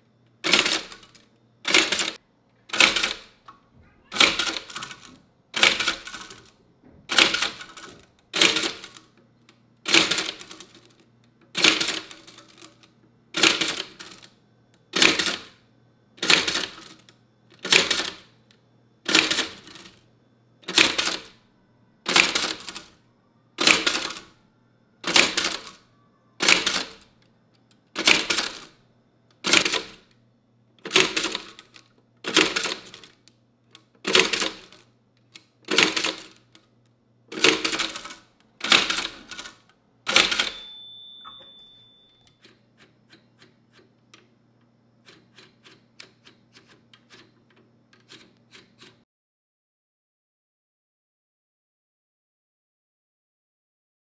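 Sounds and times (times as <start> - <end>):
typewriter clacking: 0.4 - 3.4, 4.1 - 6.5, 7.1 - 9.0, 9.9 - 11.0, 11.6 - 14.3, 15.0 - 15.6, 16.2 - 18.3, 19.1 - 20.0, 20.7 - 21.4, 22.1 - 22.9, 23.6 - 24.3, 25.0 - 25.8, 26.4 - 27.0, 28.0 - 28.7, 29.4 - 30.0, 30.8 - 33.2, 34.0 - 34.8, 35.7 - 36.5, 37.3 - 42.6.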